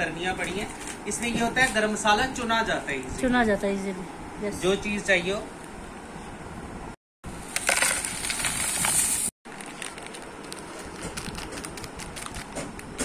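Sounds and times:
seeds rattling into a tub: 7.5s - 10.6s
plastic packet crackling: 7.6s - 12.6s.

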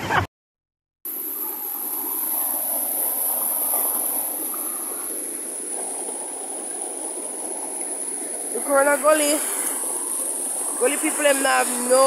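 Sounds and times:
high-pitched whine: 1.1s - 5.8s
floodwater rushing: 1.1s - 12.0s.

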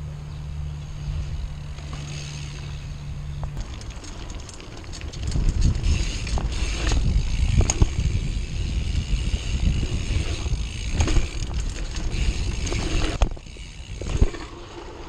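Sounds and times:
bicycle chain and frame rattling: 1.0s - 15.0s
bike hitting bumps: 1.2s - 15.0s
wind rumble on microphone: 3.4s - 14.4s.

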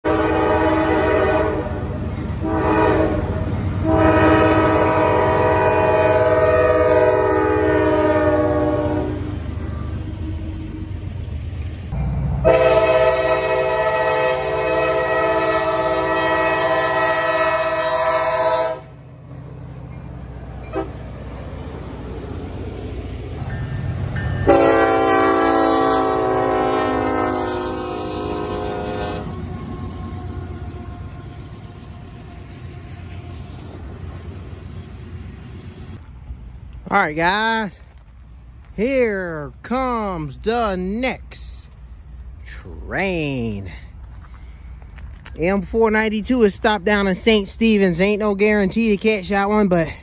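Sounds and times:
locomotive air horn blasts: 0.0s - 10.5s, 12.4s - 19.0s, 20.6s - 21.0s, 24.4s - 31.4s
low rumble of trains: 0.0s - 50.0s.

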